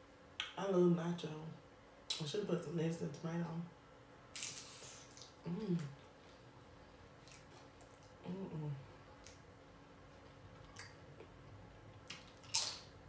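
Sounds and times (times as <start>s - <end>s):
closed-mouth hum: 3.0s - 12.8s
chewing and mouth smacks: 7.2s - 8.2s, 9.2s - 9.5s, 10.1s - 12.9s.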